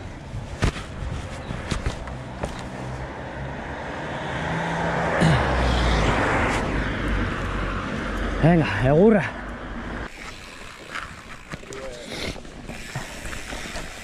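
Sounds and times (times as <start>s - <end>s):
wind and tyre rush: 0.0s - 14.0s
bike rattling clicks: 1.5s - 2.8s, 9.4s - 14.0s
car passing: 2.2s - 12.0s.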